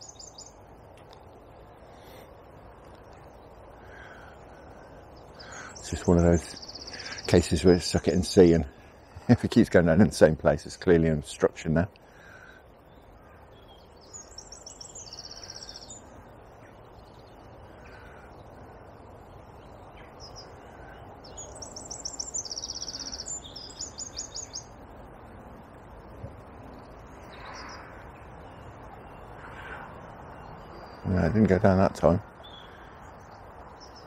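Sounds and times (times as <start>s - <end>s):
songbird trilling: 0.0s - 0.6s, 3.8s - 9.2s, 12.8s - 24.8s, 26.8s - 34.0s
faint bird calls: 1.8s - 9.3s, 12.0s - 24.8s, 26.2s - 34.0s.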